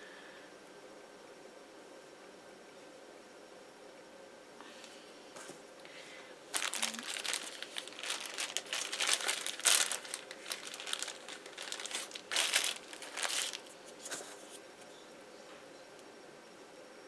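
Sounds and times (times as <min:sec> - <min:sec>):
plastic bag crinkling: 0:06.5 - 0:14.5.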